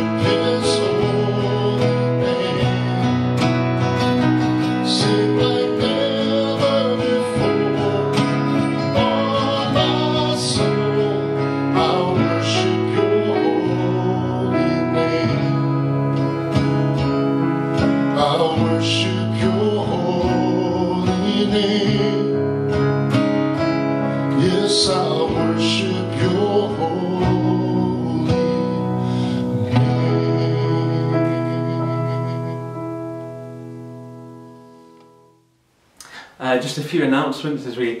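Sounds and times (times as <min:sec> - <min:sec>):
man singing: 0:00.0 - 0:16.3, 0:17.8 - 0:22.7, 0:24.2 - 0:32.8
strummed acoustic guitar: 0:00.0 - 0:34.7
digital piano: 0:00.0 - 0:38.0.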